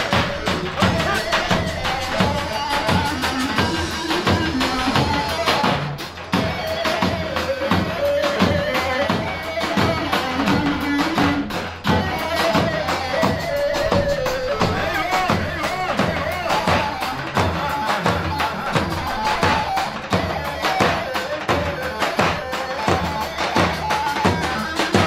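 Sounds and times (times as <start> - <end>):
bass drum beats: 0.0 - 6.5
shrill reed-pipe melody: 0.0 - 25.0.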